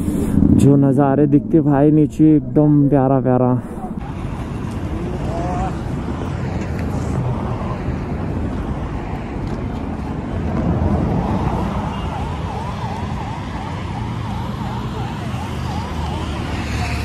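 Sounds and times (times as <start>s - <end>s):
wind rumble: 0.0s - 16.7s
road traffic: 0.0s - 17.0s
fast warbling siren: 11.4s - 17.0s.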